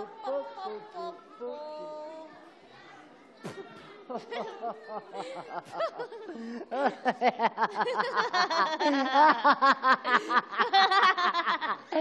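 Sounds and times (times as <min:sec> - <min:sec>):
people laughing hard: 0:04.1 - 0:12.0.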